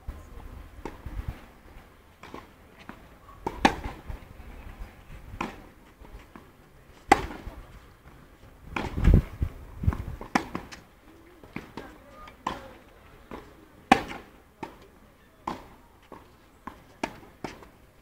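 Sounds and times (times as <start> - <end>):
tennis ball struck by rackets: 3.4 - 4.1, 5.4 - 5.7, 7.1 - 7.6, 8.8 - 9.2, 9.9 - 10.8, 11.4 - 12.7, 13.3 - 14.8, 15.4 - 17.7.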